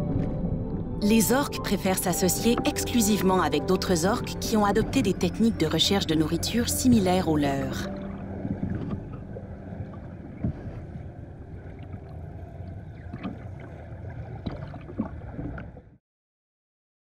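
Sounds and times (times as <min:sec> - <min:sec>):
underwater low rumble: 0:00.0 - 0:16.0.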